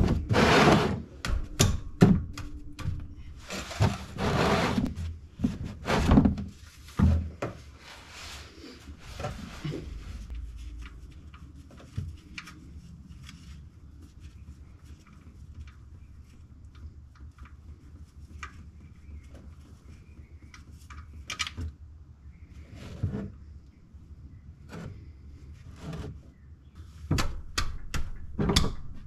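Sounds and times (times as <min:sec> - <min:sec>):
plastic drain pan scraping concrete: 0:00.0 - 0:01.1, 0:03.5 - 0:06.5.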